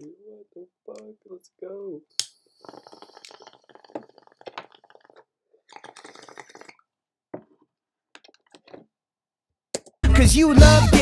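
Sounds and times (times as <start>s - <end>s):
water gurgling in a bong: 2.4s - 8.9s.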